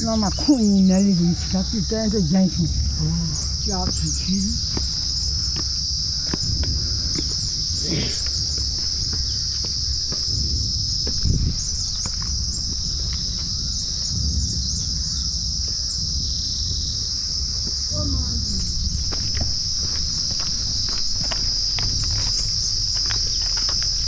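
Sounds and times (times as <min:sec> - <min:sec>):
insect chorus: 0:00.0 - 0:24.0
footsteps on path: 0:02.9 - 0:14.3, 0:18.5 - 0:24.0.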